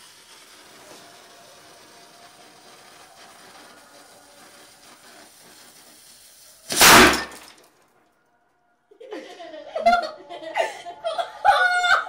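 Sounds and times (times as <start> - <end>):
fuse hissing: 0.0 - 7.6
model cannon firing bang: 6.7 - 7.5.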